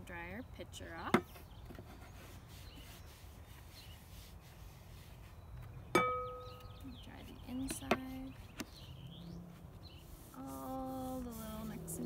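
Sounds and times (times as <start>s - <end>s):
towel rubbing plastic pitcher: 2.1s - 5.3s, 9.9s - 12.0s
sharp ringing knock: 5.9s - 6.6s.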